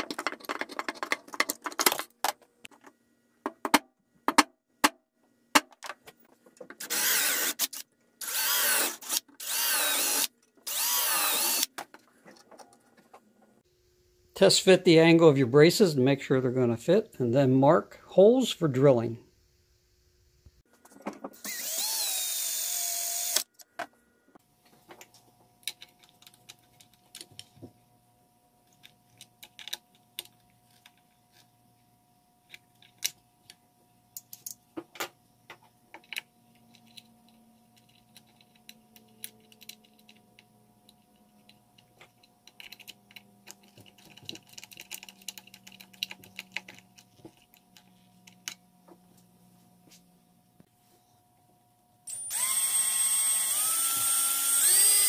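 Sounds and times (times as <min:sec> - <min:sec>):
cordless drill boring metal: 0:06.8 - 0:11.7, 0:21.4 - 0:23.4, 0:52.1 - 0:55.0
drill driving screws: 0:06.8 - 0:11.7, 0:21.4 - 0:23.5, 0:52.1 - 0:55.0.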